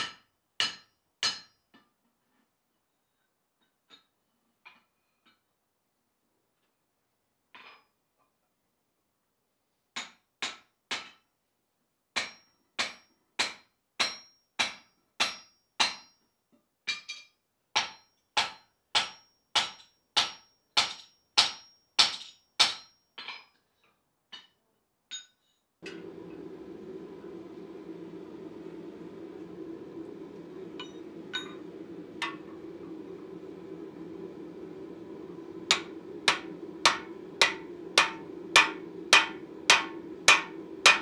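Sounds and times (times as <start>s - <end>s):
forge rushing hum: 25.8s - 41.0s
hammer striking metal: 35.7s - 41.0s.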